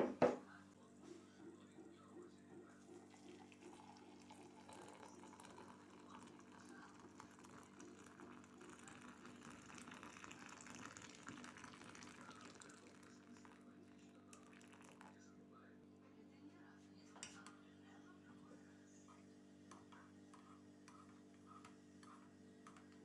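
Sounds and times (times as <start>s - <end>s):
water pouring into a mug: 1.8s - 15.2s.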